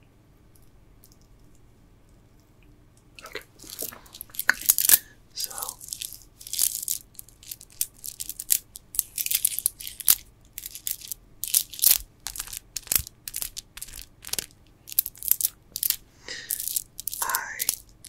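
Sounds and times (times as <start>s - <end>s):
rustling: 3.2s - 18.0s
stone beads clicking: 3.6s - 18.0s.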